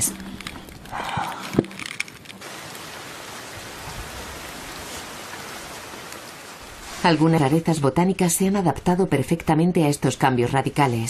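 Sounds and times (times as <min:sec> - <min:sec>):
rain hissing: 0:02.4 - 0:07.7.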